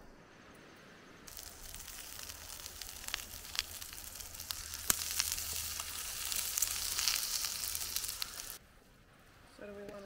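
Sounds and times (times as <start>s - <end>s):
food sizzling in a pan: 1.3s - 8.6s.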